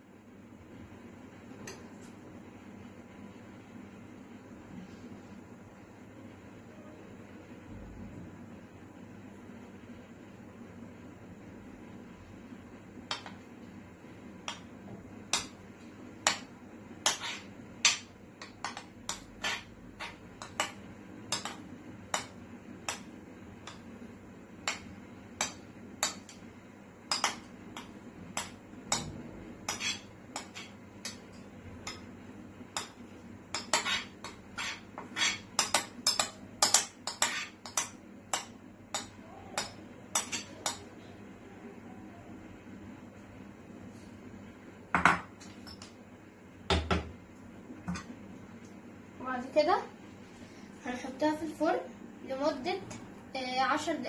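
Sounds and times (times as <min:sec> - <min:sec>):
spoon scraping ceramic bowl: 0:17.1 - 0:17.5, 0:18.6 - 0:20.5, 0:29.6 - 0:31.2, 0:33.6 - 0:37.8.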